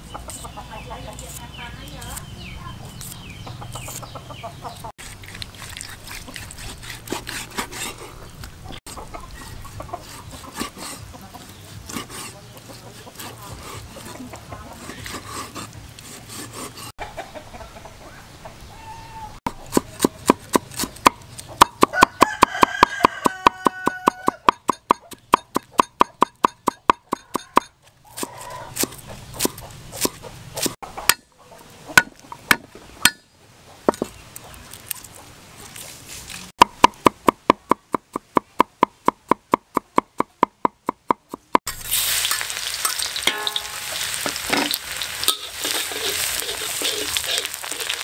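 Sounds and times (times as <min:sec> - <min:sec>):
chickens clucking: 0:00.0 - 0:05.0, 0:06.0 - 0:15.7, 0:16.4 - 0:20.4, 0:23.2 - 0:33.0
knife cutting on wooden block: 0:05.0 - 0:08.2, 0:10.0 - 0:11.1, 0:11.8 - 0:16.9
cleaver chopping rapidly: 0:19.5 - 0:31.2, 0:36.6 - 0:41.6.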